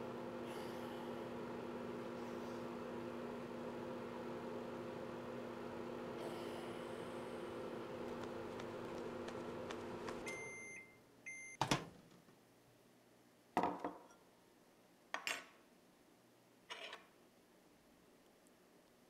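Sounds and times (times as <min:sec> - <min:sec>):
microwave oven humming: 0:00.0 - 0:11.5.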